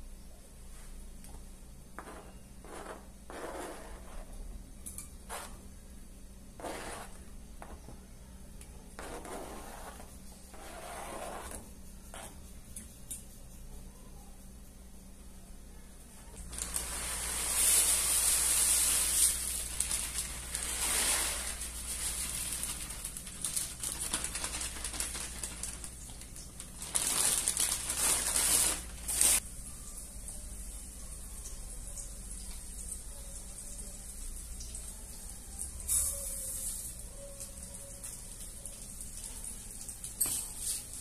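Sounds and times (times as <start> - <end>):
food handling: 18.8 - 29.4.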